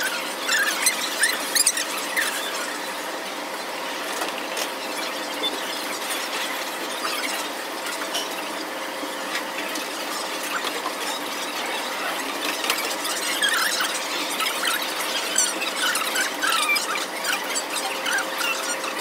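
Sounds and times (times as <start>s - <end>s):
restaurant room noise: 0.0s - 19.0s
short high squeaks: 10.1s - 19.0s.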